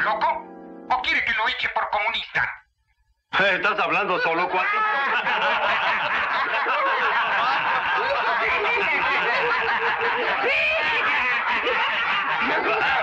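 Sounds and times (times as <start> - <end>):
men laughing mockingly: 4.2 - 13.0.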